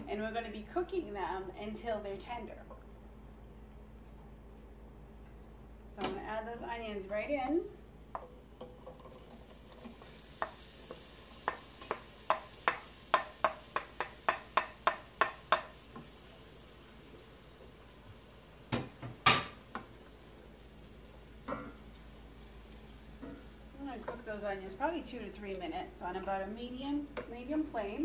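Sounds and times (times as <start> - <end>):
onion sizzling in pan: 7.0 - 28.0
wooden spoon hitting pan: 11.4 - 16.1, 18.7 - 19.9.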